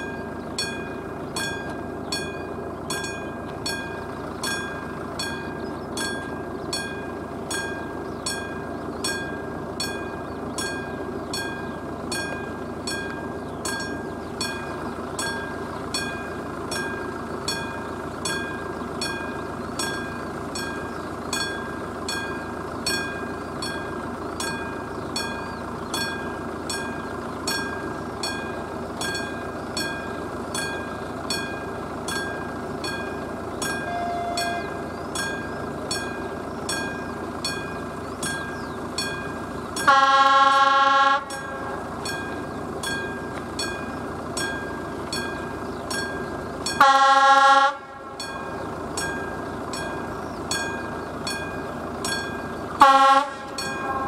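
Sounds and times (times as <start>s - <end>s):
level-crossing bell ringing: 0.0s - 40.0s, 41.2s - 46.9s, 48.2s - 52.6s, 53.5s - 54.0s
train horn: 33.8s - 34.8s, 39.8s - 41.9s, 46.8s - 48.0s, 52.8s - 54.0s.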